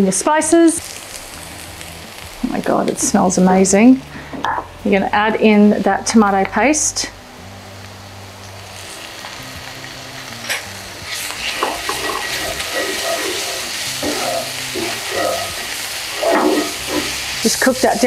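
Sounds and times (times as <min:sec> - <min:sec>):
food sizzling in a skillet: 0:00.0 - 0:18.0
wooden spatula scraping: 0:11.1 - 0:17.6.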